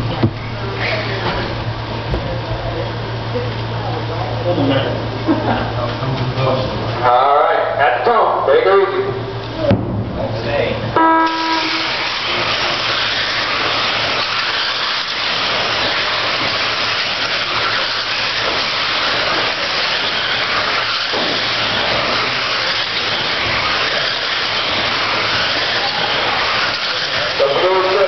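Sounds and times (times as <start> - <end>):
rc cars racing on dirt: 11.4 - 28.0.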